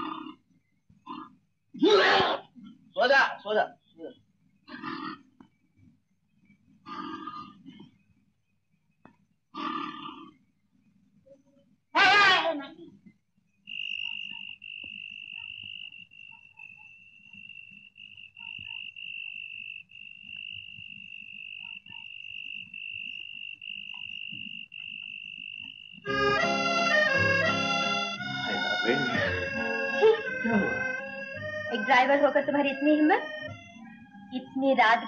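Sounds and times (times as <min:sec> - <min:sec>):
crickets chirping: 0:12.8 - 0:35.0
organ music with full chords: 0:26.0 - 0:34.4.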